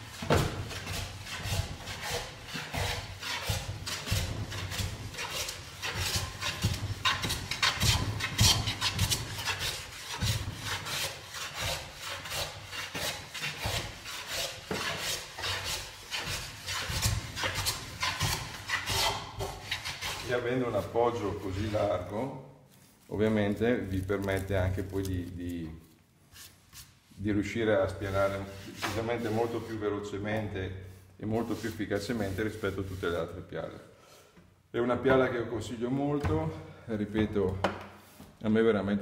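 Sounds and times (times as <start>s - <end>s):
hand plane shaving wood: 0.1s - 20.4s.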